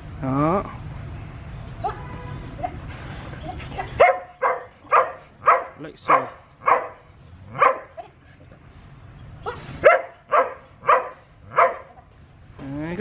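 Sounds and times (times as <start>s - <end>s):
dog barking: 4.0s - 7.9s, 9.8s - 12.0s.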